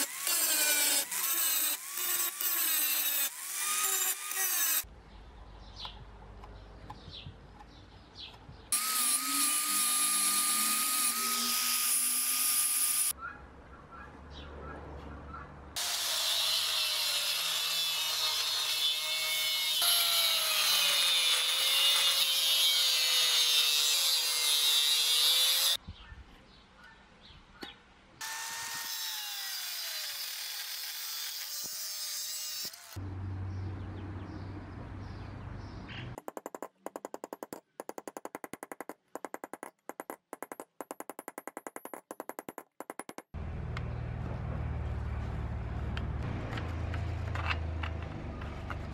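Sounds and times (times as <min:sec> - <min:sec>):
angle grinder cutting steel: 0:00.0 - 0:04.9, 0:08.8 - 0:13.1, 0:15.8 - 0:25.8, 0:28.2 - 0:33.0.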